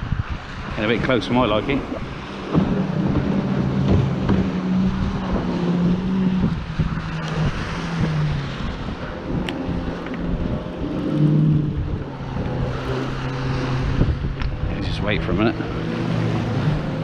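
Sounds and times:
outboard engines droning: 0.0 - 17.0
wind on microphone: 0.0 - 17.0
waves breaking on shingle: 1.8 - 8.7.

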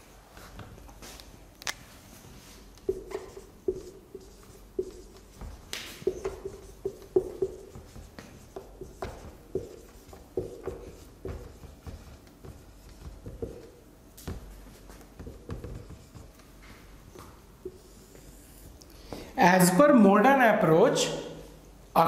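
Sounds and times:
marker pen squeaking on whiteboard: 1.6 - 18.8.

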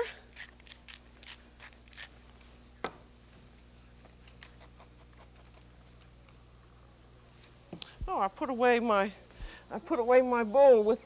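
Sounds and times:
pepper mill grinding: 0.0 - 2.5.

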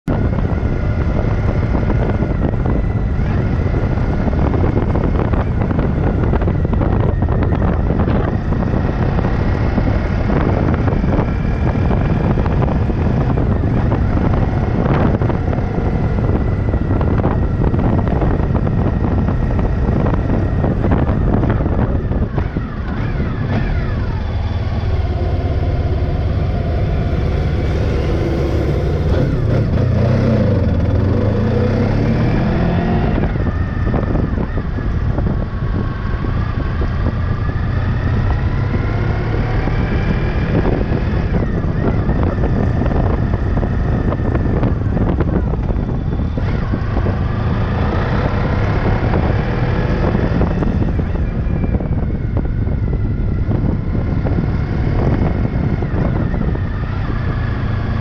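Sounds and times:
motorcycle engine running: 0.0 - 58.0
wind noise on microphone: 0.0 - 58.0
truck engine passing: 7.6 - 35.2.

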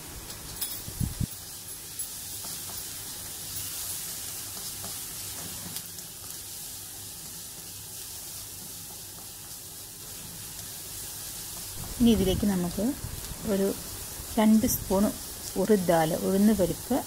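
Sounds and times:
vegetables sizzling in hot oil: 0.0 - 17.0
spatula tapping a pan: 2.4 - 3.1, 4.4 - 5.1, 8.5 - 9.5.

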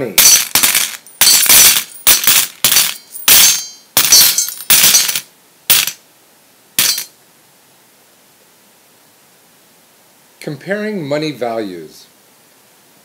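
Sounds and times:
metallic coin clinks: 0.2 - 6.0, 6.8 - 7.1.

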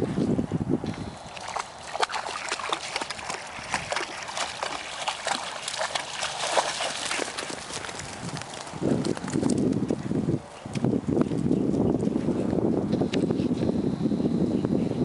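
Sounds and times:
dog splashing through water: 1.2 - 9.8.

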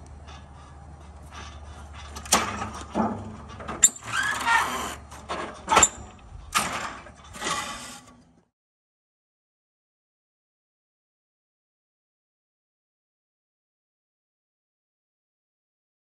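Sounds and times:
metallic clanks of sheet-metal brake: 2.2 - 4.4, 5.2 - 7.8.

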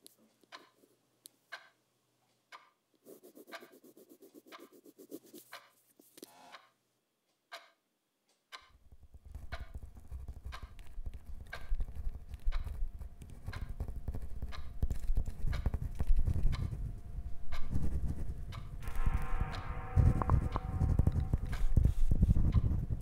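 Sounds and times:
clock ticking: 0.4 - 0.8, 1.5 - 1.8, 2.4 - 5.8, 6.5 - 14.8, 15.4 - 15.8, 16.5 - 16.8, 17.4 - 17.8, 18.4 - 23.0
pen scratching on paper: 3.0 - 6.2, 9.2 - 16.0
low rumble: 16.6 - 23.0.

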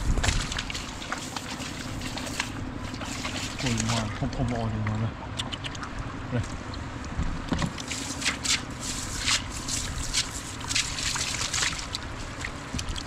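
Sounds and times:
low rumble: 0.0 - 1.1
wet splashes and rustling: 0.0 - 13.0.

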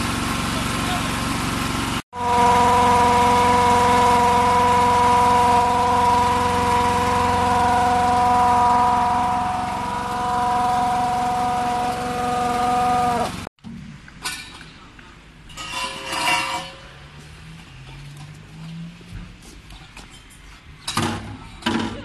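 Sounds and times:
small gasoline engine running: 0.0 - 13.5.

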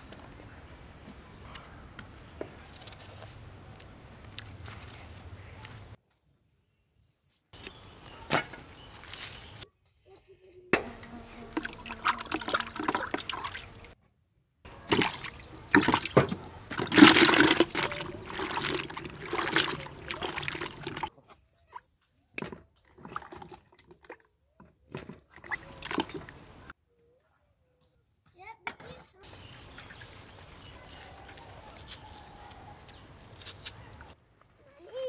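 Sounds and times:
water sloshing in plastic tub: 10.8 - 14.0, 14.7 - 21.1, 22.4 - 26.7.

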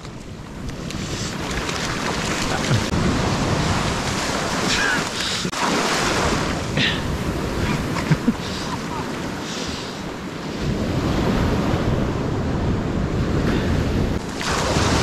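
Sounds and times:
surf washing over sand: 0.0 - 15.0
wind on microphone: 6.1 - 15.0.

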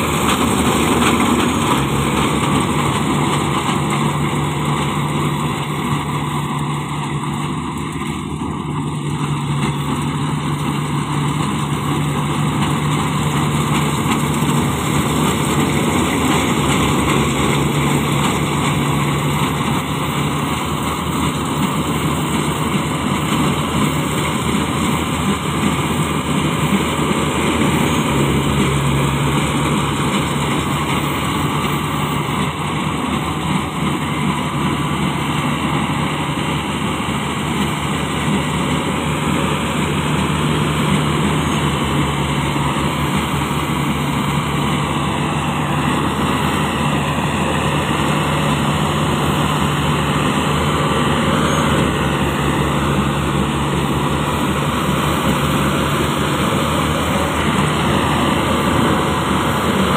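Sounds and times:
combine harvester engine drone: 0.0 - 59.9.

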